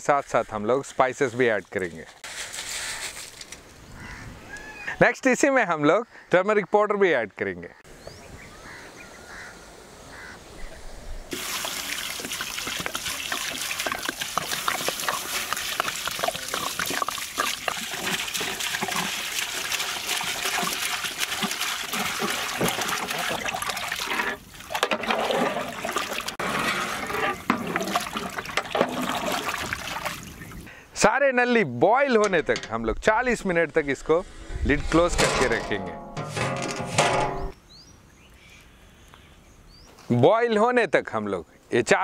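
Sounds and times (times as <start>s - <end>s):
water pouring into a pot: 11.3s - 30.4s
water sloshing in a pot: 11.3s - 30.7s.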